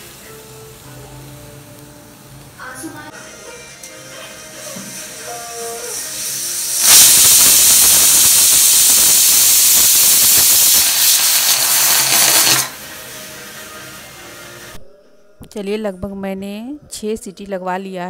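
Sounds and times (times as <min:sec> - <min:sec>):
pressure cooker whistling: 0:06.2 - 0:12.8.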